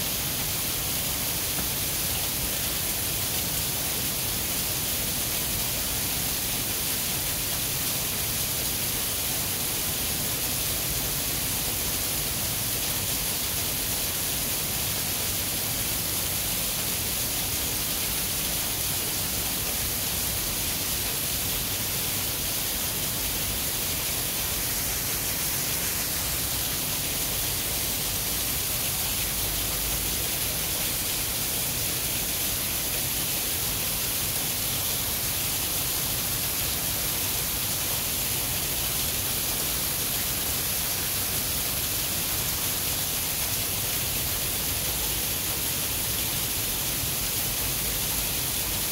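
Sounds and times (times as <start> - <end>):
waterfall rushing: 15.8 - 38.7.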